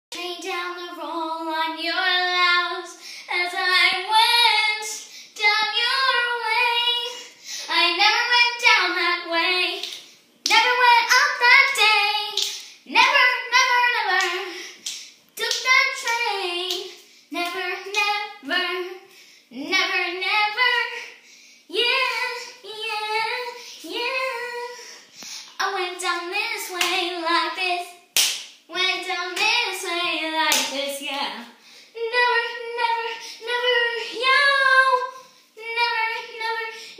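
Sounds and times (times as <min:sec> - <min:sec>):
girl singing: 0:00.1 - 0:36.9.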